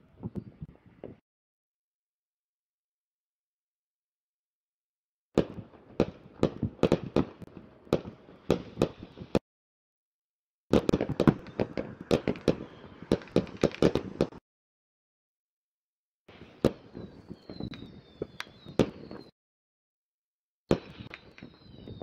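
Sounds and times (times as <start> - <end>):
firecrackers popping and banging: 5.4 - 9.4, 10.7 - 14.4, 16.3 - 19.3, 20.7 - 22.0
thin high whistle: 16.9 - 19.3, 21.0 - 22.0.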